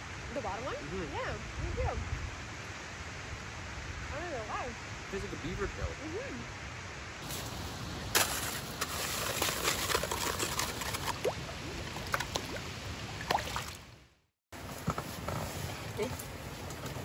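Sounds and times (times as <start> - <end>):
stream rushing: 6.2 - 14.1
water splashing: 7.2 - 14.0.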